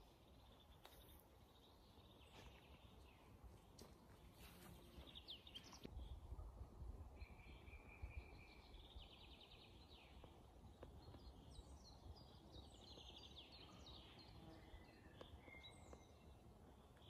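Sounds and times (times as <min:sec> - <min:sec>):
birds singing: 0:07.2 - 0:17.0.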